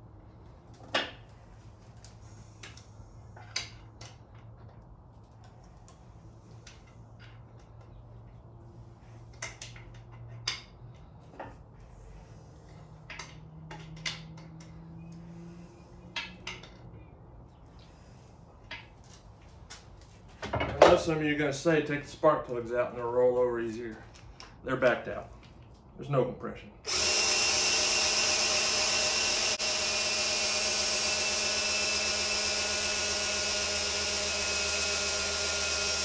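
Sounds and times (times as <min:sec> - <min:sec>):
cordless drill humming: 0:26.9 - 0:36.0.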